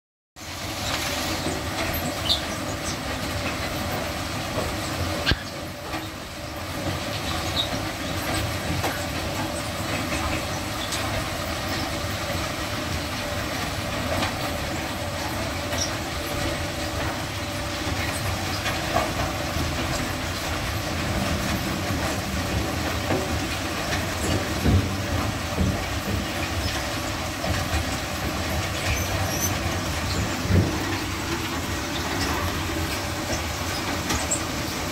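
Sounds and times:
conveyor running: 0.4s - 34.9s.

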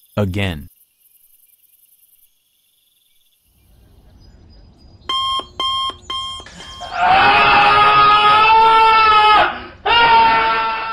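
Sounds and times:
digital alarm clock beeping: 5.1s - 6.9s
loud drawn-out scream: 6.6s - 10.9s.

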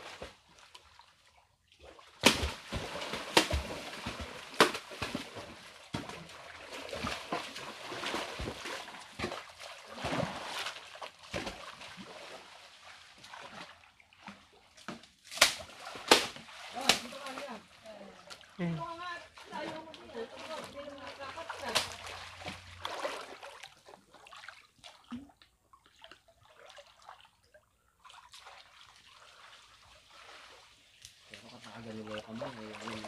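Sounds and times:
water sloshing as people wade: 0.0s - 33.0s
sharp water splashes: 1.8s - 25.2s.

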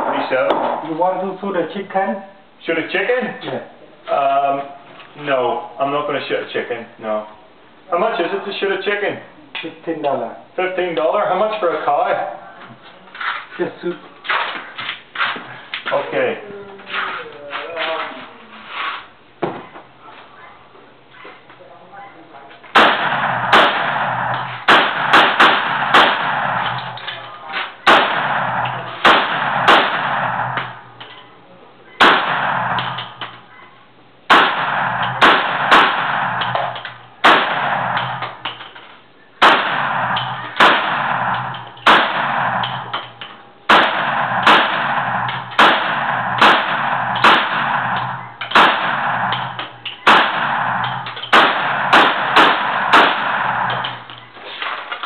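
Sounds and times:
rifle shots ringing: 22.7s - 27.2s, 27.8s - 31.0s, 32.0s - 33.5s, 34.3s - 38.6s, 39.4s - 54.1s.

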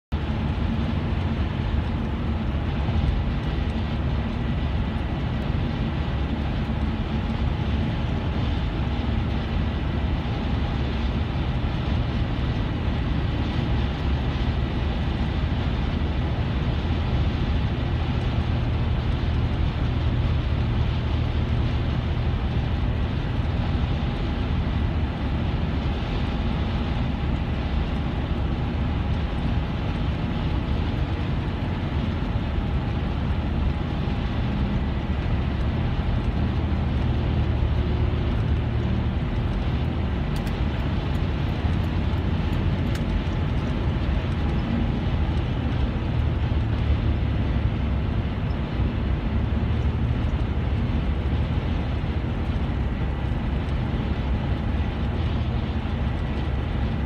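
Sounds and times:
car road noise at highway speed: 0.0s - 57.0s.

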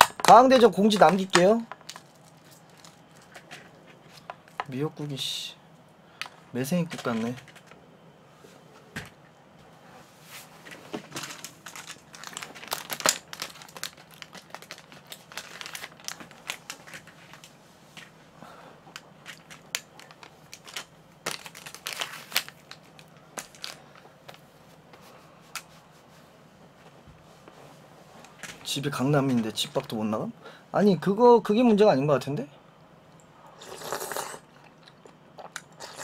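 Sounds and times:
wrapping crinkling and tearing: 0.2s - 3.5s, 11.2s - 17.6s, 19.0s - 24.4s.

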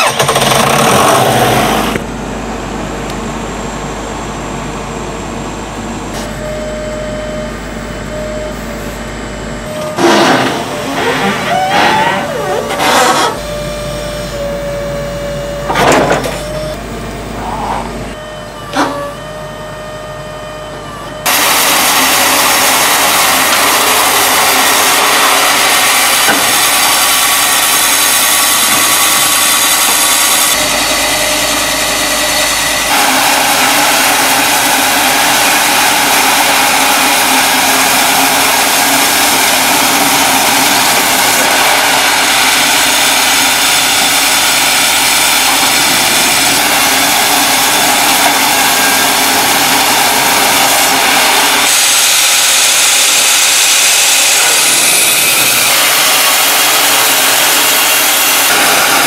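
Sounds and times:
band saw cutting log: 0.0s - 2.1s, 9.9s - 13.6s, 21.2s - 59.0s.

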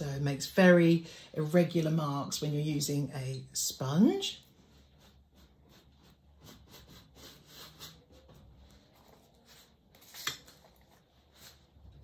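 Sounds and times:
sponge dabbing paint on canvas: 4.1s - 12.0s.

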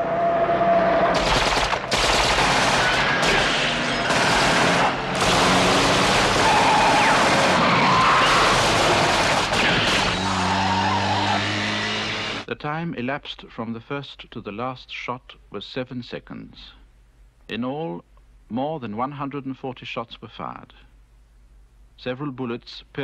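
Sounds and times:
automatic gunfire bursts: 1.2s - 7.6s, 8.4s - 10.2s.

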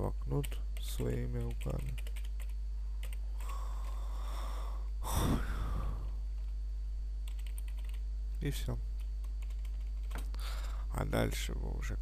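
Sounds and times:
low electrical hum: 0.0s - 12.0s
person breathing close to microphone: 3.4s - 6.2s, 10.3s - 10.9s.

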